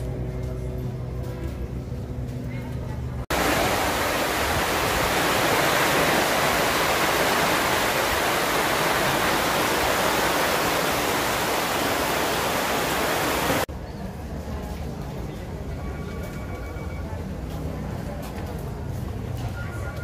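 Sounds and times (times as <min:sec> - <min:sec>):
heavy rain on tent canopy: 0:03.3 - 0:13.7.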